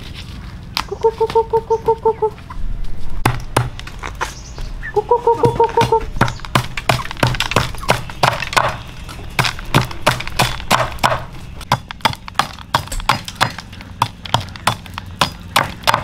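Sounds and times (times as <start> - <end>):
sharp knocks and clicks: 5.4 - 16.0.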